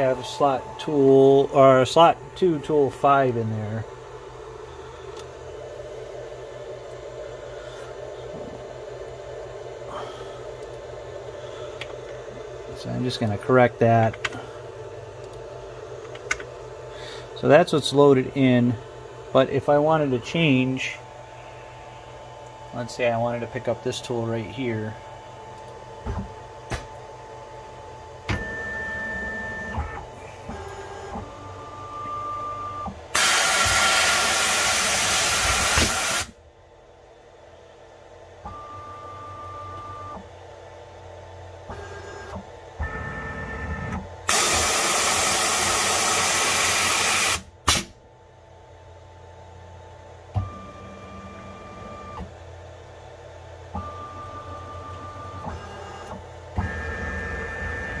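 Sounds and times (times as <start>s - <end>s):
stepper motor whines: 28.3s - 36.4s, 41.7s - 47.5s
compressed air blasts: 33.2s - 36.3s.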